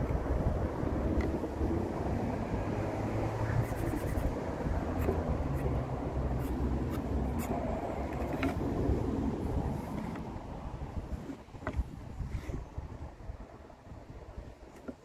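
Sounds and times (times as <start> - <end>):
wind on microphone: 0.0 - 14.8
pencil scratching: 3.6 - 8.5.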